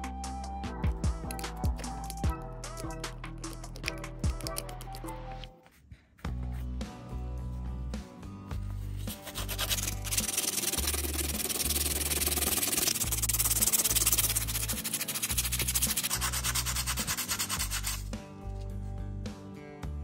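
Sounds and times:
background music: 0.0 - 20.0
abrasive rubbing on plastic: 9.0 - 18.0.

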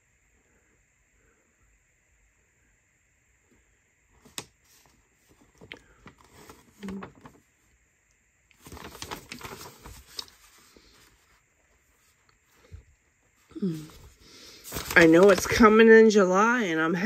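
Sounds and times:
paper rustling and crinkling: 4.2 - 7.5, 8.5 - 15.9
low voice hum: 6.7 - 7.4, 13.4 - 15.3.

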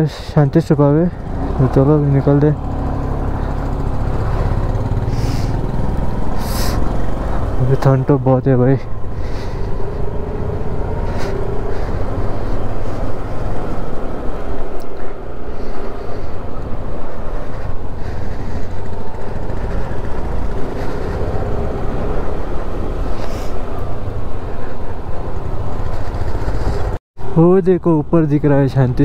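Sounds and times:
scooter engine running: 1.2 - 7.8, 16.0 - 23.1
wind rumble on microphone: 8.8 - 27.0.

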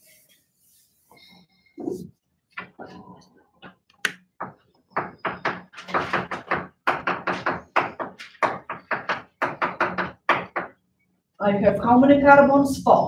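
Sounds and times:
chalk tapping on blackboard: 4.0 - 10.7.

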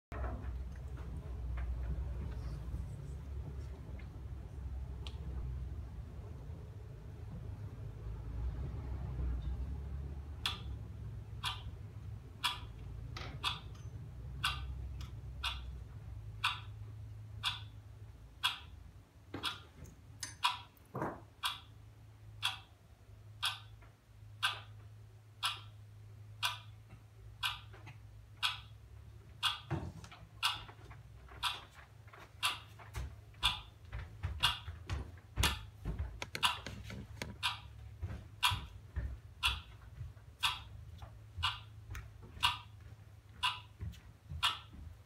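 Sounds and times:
low steady hum: 0.1 - 32.2
regular ticking: 9.3 - 45.0.

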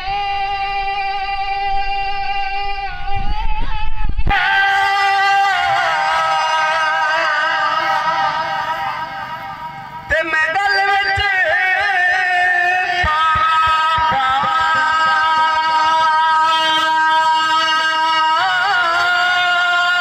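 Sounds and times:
low rumble: 0.0 - 4.4
man singing unaccompanied: 0.0 - 20.0.

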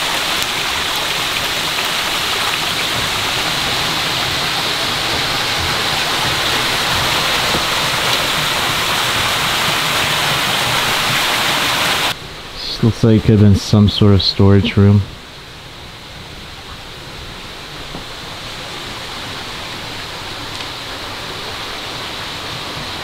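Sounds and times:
stream water running over rocks: 0.0 - 23.0.

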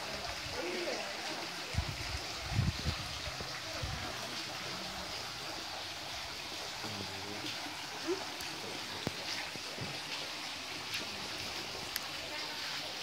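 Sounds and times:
stream running over rocks: 0.0 - 13.0.

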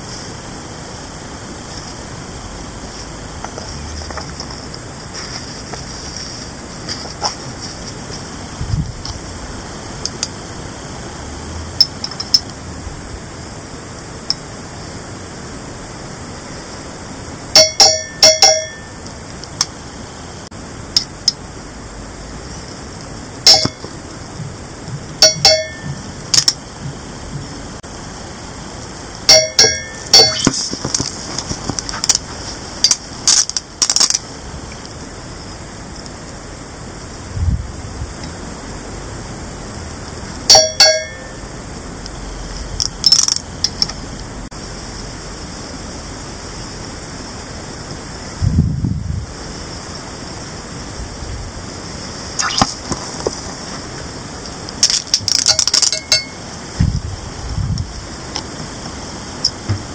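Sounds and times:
metal dish ringing: 17.6 - 19.0, 23.5 - 23.8, 25.2 - 26.1, 29.3 - 30.5, 40.5 - 41.4, 55.9 - 56.4
small cracks: 32.9 - 34.3, 42.8 - 44.0, 54.7 - 56.0.

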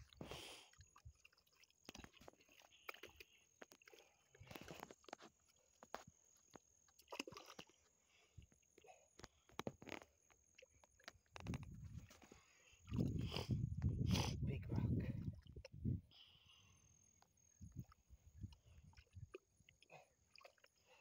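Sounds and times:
hands scooping wet mud: 0.0 - 6.1.

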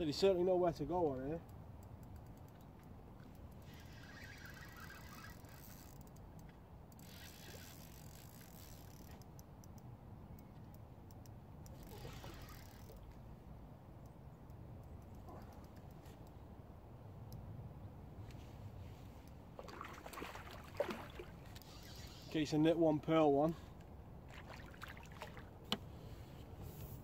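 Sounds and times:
fishing reel gears clicking: 3.3 - 9.8, 11.7 - 13.1.

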